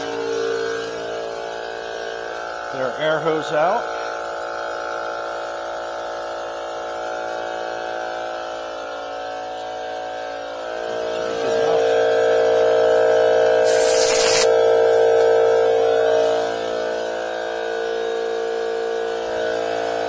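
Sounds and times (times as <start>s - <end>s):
air compressor motor hum: 0.0s - 20.0s
short hiss of air: 13.6s - 14.5s.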